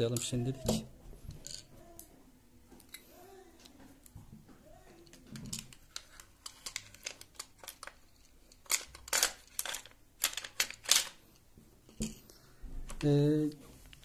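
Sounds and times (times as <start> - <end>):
shotgun parts clicking and scraping: 5.0 - 11.2.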